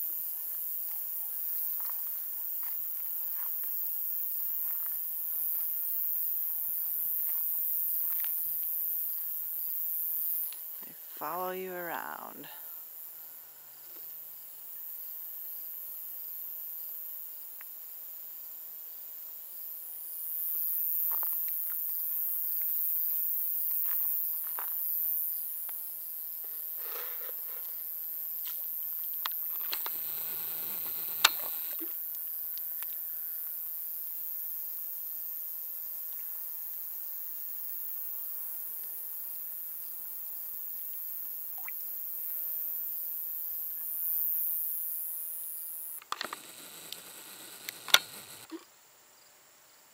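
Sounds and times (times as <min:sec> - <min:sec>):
insects trilling: 0:00.0 - 0:49.3
faint clicks: 0:46.0 - 0:48.6.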